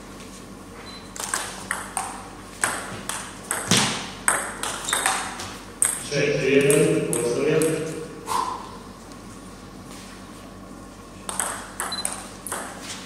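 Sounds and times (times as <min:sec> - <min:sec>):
table tennis ball clicking: 0:01.2 - 0:06.0, 0:11.3 - 0:12.8.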